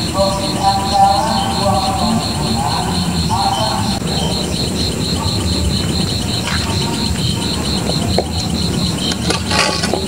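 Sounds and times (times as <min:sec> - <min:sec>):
low background rumble: 0:00.0 - 0:09.4
crickets chirping: 0:00.0 - 0:10.0.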